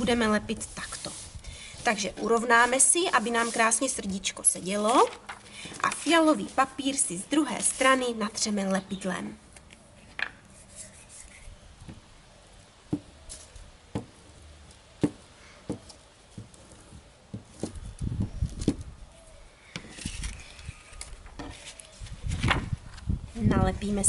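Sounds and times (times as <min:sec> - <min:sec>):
glue stick rubbing on paper: 0:00.6 - 0:04.0
paper handling: 0:19.8 - 0:23.0.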